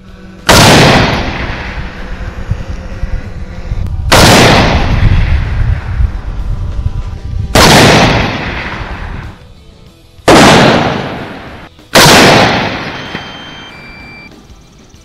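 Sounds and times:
rifle shots echoing: 0.5s - 2.1s, 4.1s - 5.6s, 7.5s - 9.3s, 10.3s - 13.6s.

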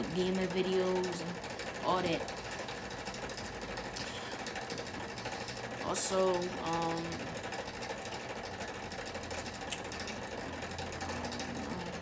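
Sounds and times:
small motor humming: 0.0s - 12.0s
sharp click: 9.7s - 9.9s.

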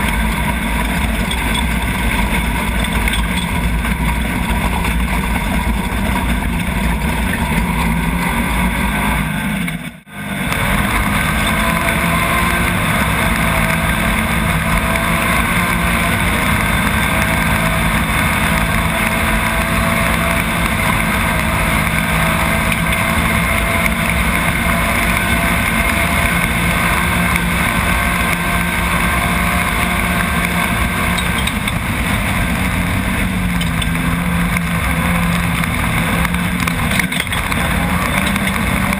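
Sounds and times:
buggy engine running hard: 0.0s - 38.9s
gravel noise: 0.0s - 38.9s.

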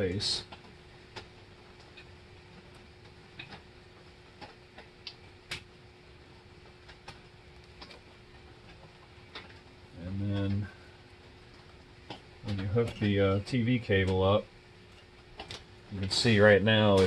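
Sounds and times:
faint steady hum: 0.0s - 17.0s
cable and spring clicking: 15.0s - 17.0s.

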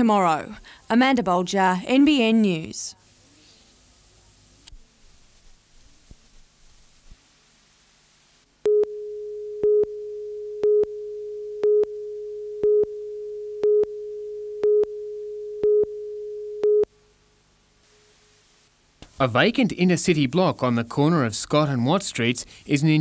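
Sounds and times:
steady mid-pitched tone: 8.7s - 16.9s.

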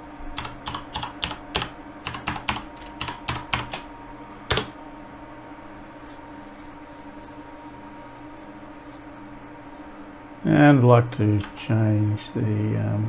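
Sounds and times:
steady hum: 0.0s - 13.0s
keyboard typing: 0.4s - 3.9s, 4.5s - 4.7s.

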